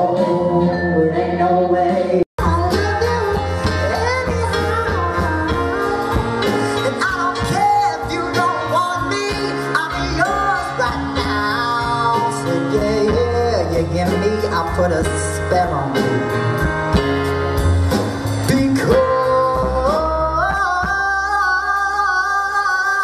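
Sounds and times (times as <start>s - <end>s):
person singing: 0.0s - 16.5s, 18.3s - 23.0s
backing music with low bass: 0.0s - 23.0s.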